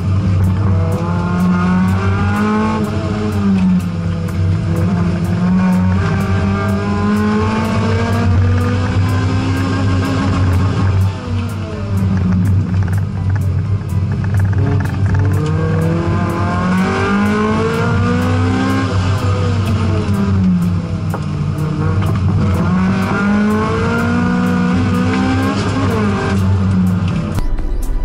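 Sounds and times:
race car engine revving: 0.0 - 27.4.

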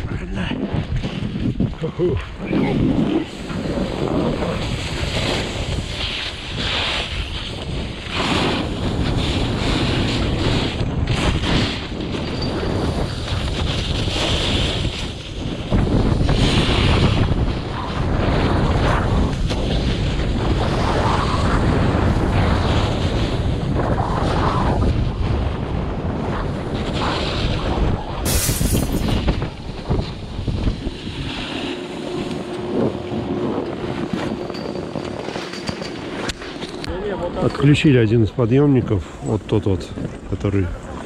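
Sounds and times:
wind rushing over microphone: 0.0 - 41.0
snowboard edges scraping snow: 2.4 - 23.4, 26.7 - 36.8.

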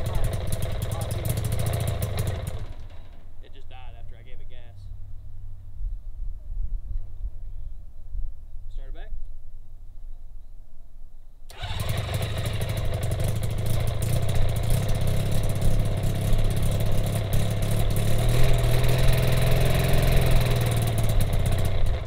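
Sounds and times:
aircraft engine starting and running: 0.0 - 3.3, 11.5 - 22.0.

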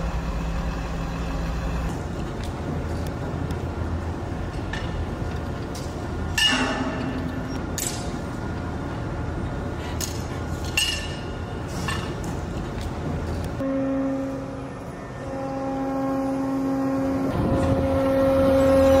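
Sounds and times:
low machinery hum: 0.0 - 19.0
metal slings clanking on steel: 9.9 - 12.4.

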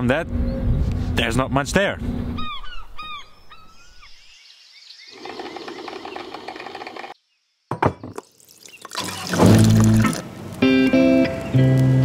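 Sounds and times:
mechanical whir: 5.1 - 7.2
coffee pouring into mug: 8.2 - 10.2.

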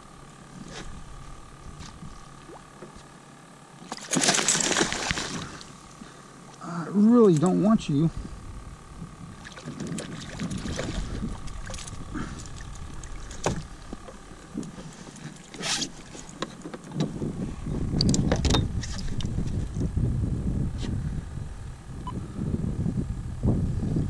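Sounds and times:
fish splashing at surface: 3.9 - 5.6
wind rumble on microphone: 7.9 - 14.8, 16.9 - 24.0.

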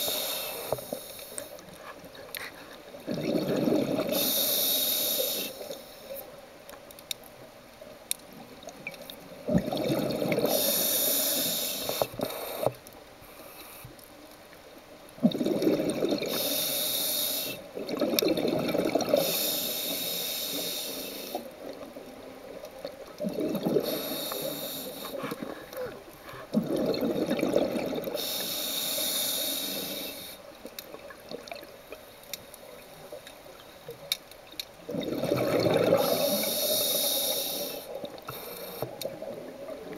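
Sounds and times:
scuba regulator breathing: 0.0 - 3.2, 4.0 - 6.2, 10.4 - 13.9, 16.3 - 17.7, 19.1 - 21.5, 23.6 - 26.6, 28.1 - 30.5, 35.9 - 39.1.

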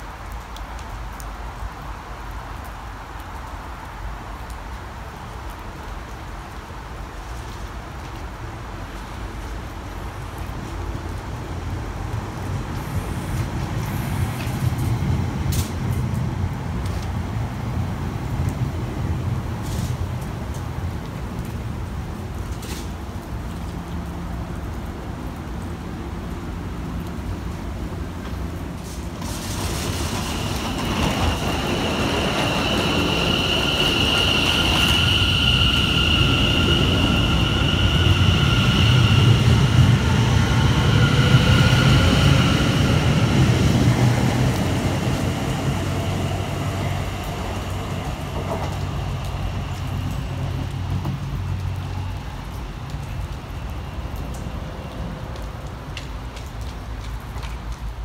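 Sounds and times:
rain falling: 0.0 - 58.0
train wheels rumbling on rails: 7.2 - 58.0
electric train whine: 28.2 - 55.2.

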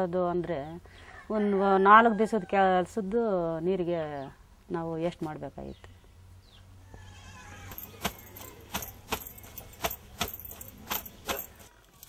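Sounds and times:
wet cloth scrubbed on stone: 7.7 - 11.7.

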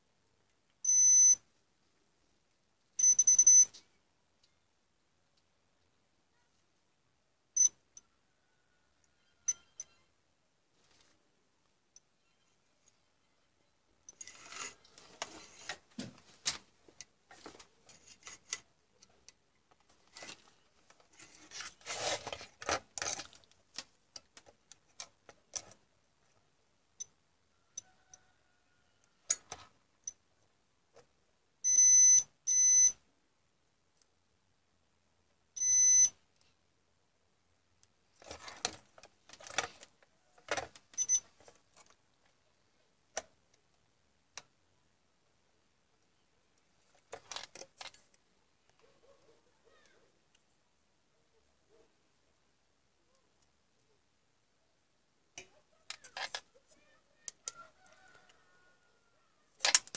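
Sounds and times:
multimeter continuity beeps: 0.8 - 1.4, 3.0 - 3.7, 31.6 - 33.0, 35.6 - 36.2, 41.0 - 41.2.

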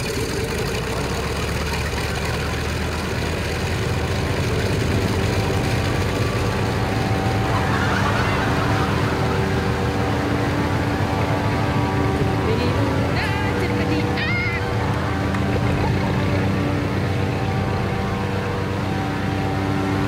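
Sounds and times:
propeller blower engine drone: 0.0 - 20.0.

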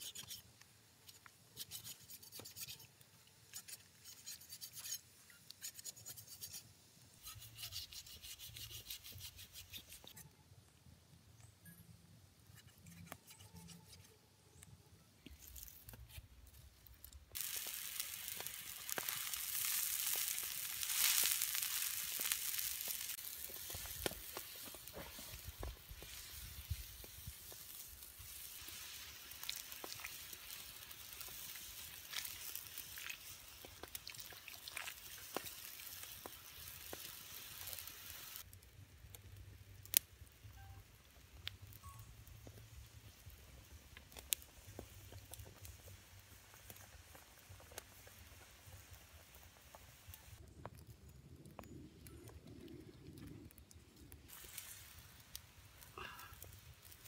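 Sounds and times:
pops and crackles: 14.6 - 57.0
wok hissing over fire: 17.4 - 38.5, 54.3 - 57.0.

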